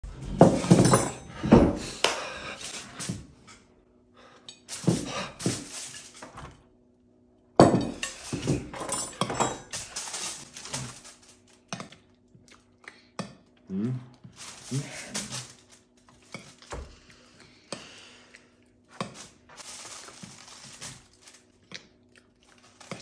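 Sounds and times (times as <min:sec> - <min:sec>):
dishes clattering on a table: 0:00.2 - 0:03.6, 0:04.6 - 0:06.6, 0:07.6 - 0:11.1
aluminium foil crinkling: 0:09.7 - 0:11.7, 0:14.4 - 0:16.7, 0:19.1 - 0:23.0.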